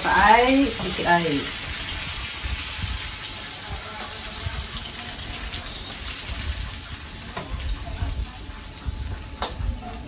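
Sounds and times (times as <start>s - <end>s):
water hissing in hot wok: 0.0s - 9.2s.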